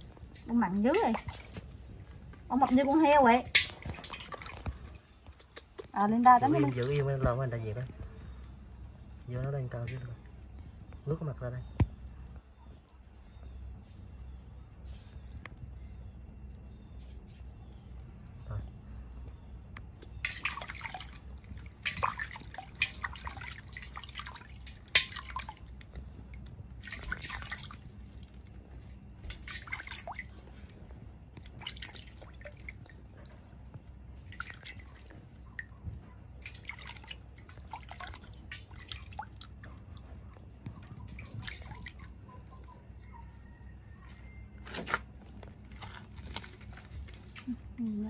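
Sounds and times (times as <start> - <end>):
water splashing in a steel basin: 0.0 - 1.8, 2.5 - 7.6, 20.0 - 42.8.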